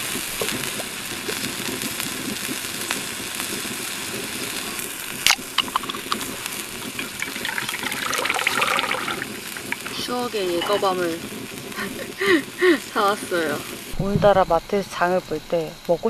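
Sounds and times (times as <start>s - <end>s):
steady background hiss: 0.0s - 16.0s
drink pouring and fizzing: 5.1s - 12.6s
drink can cracked open: 5.3s - 10.0s.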